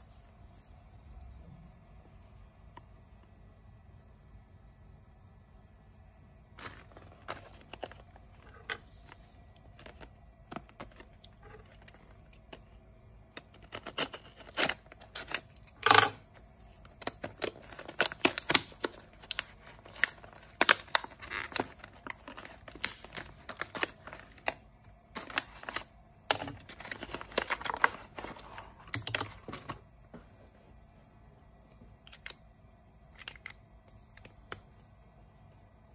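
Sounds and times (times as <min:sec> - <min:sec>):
plastic packaging crinkling: 0:06.6 - 0:29.8.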